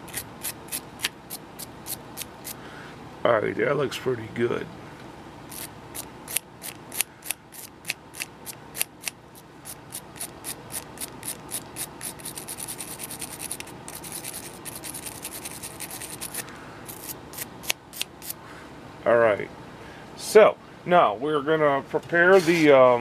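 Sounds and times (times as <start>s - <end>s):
wire brush scrubbing metal tip: 5.5s - 18.4s.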